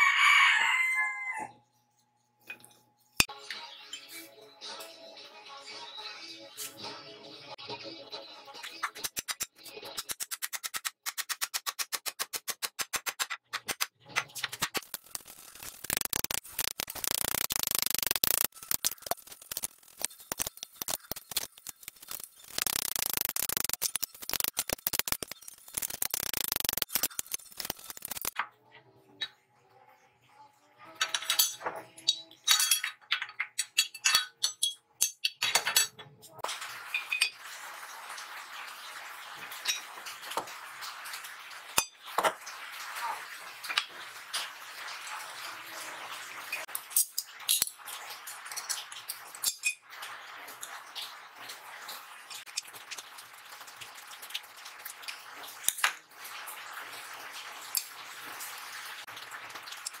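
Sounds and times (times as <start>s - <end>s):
tools clinking on metal workbench: 31.0s - 36.1s.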